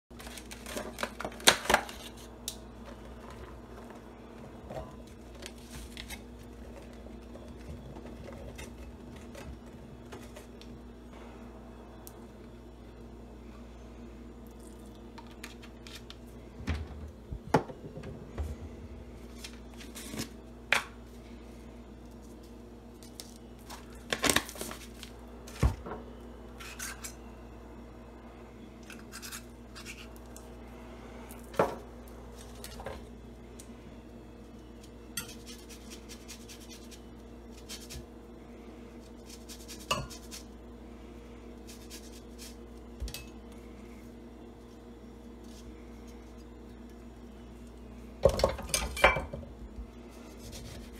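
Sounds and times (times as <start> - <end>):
low hum: 1.7 - 39.3.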